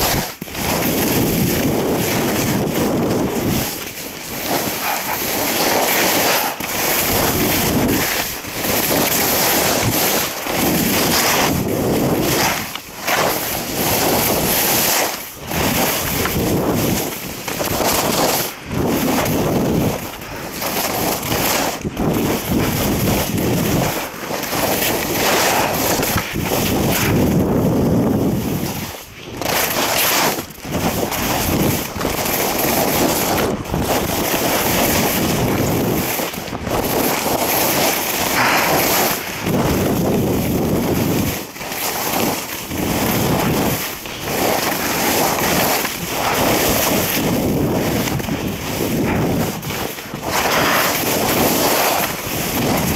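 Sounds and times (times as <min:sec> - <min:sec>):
wind buffeting microphone: 0:00.0 - 0:14.5, 0:15.4 - 0:29.5, 0:30.2 - 0:41.6, 0:42.2 - 0:52.9
skis sliding on snow: 0:00.0 - 0:52.9.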